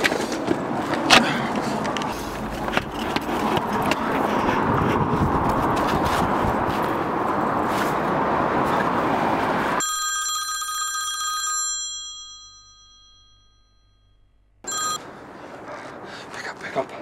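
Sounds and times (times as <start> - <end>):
loud rushing noise: 0.2 - 9.8
bright bell-like ring: 9.8 - 15.0.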